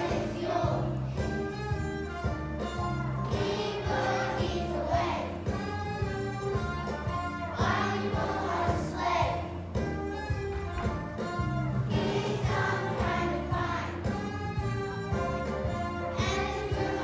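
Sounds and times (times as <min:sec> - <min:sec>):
children's choir singing: 0:00.0 - 0:01.4, 0:03.2 - 0:05.8, 0:07.4 - 0:09.8, 0:11.8 - 0:17.0
instrumental accompaniment: 0:00.0 - 0:17.0.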